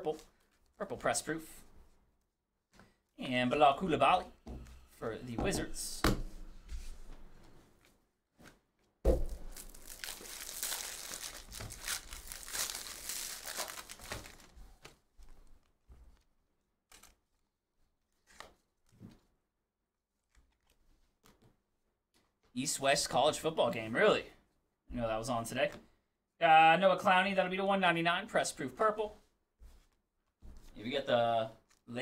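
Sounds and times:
wrapper ripping and crinkling: 9.2 - 14.6
soft clicks of cards: 18.2 - 19.2.

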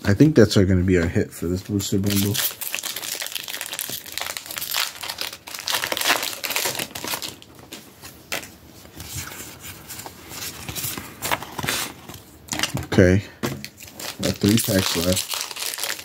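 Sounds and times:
foil wrappers crinkling: 1.9 - 8.4, 13.6 - 16.0.

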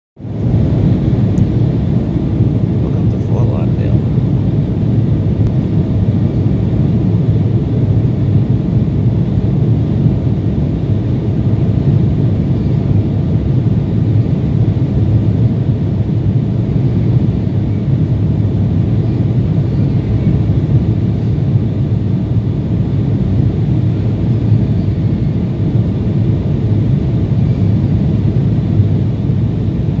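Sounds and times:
airliner cabin engine rumble: 0.2 - 30.0.

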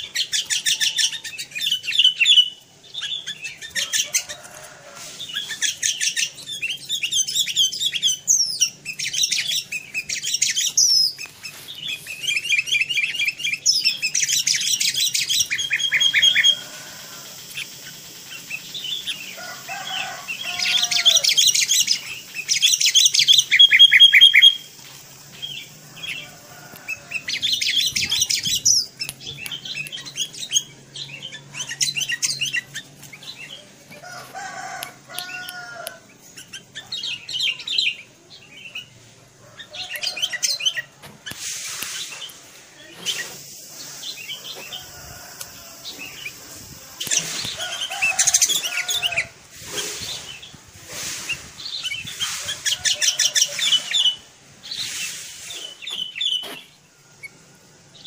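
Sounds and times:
bird chattering calls: 0.0 - 38.0.

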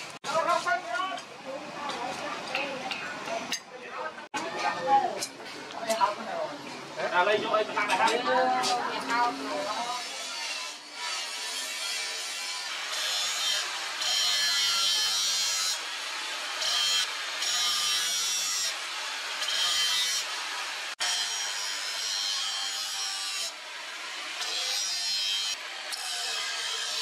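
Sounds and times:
grinder disc grinding steel: 7.9 - 27.0.

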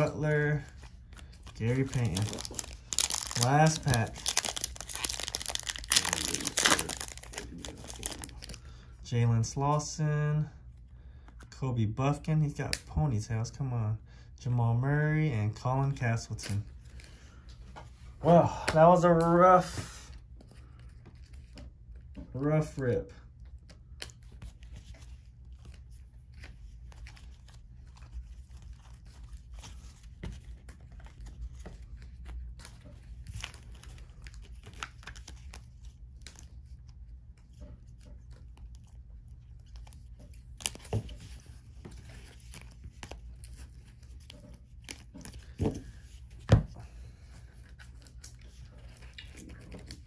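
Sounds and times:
cards rustling and clicking: 0.0 - 8.6, 23.4 - 50.0.

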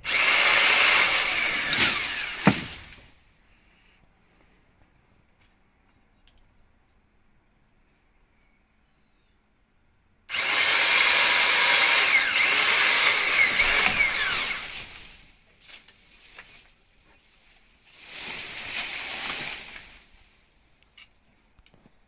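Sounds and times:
electric chainsaw cutting branch: 0.0 - 3.1, 10.3 - 15.3.

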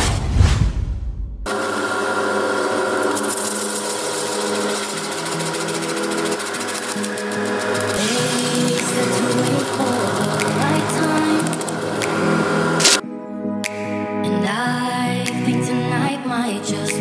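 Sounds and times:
drill press motor hum: 1.5 - 13.0
blades rasping plastic sheet: 12.8 - 13.0.

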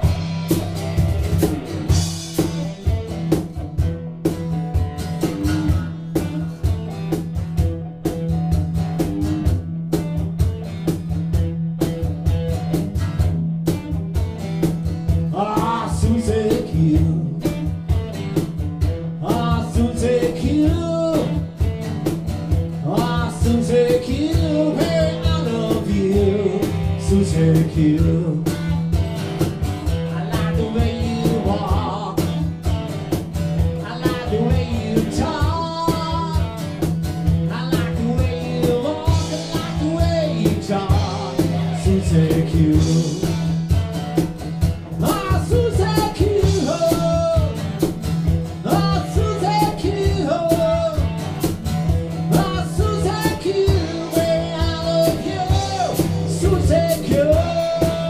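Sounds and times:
acoustic guitar: 0.0 - 58.0
drums: 0.0 - 58.0
electric guitar: 0.0 - 58.0
man singing: 15.1 - 18.0, 19.1 - 21.7, 22.7 - 29.0, 29.9 - 32.8, 33.6 - 43.8, 44.9 - 51.5, 52.1 - 58.0.

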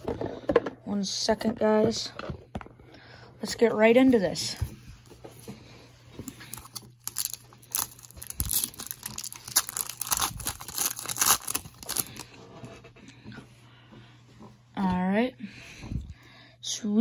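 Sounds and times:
foil wrapper crackling: 6.4 - 12.2.

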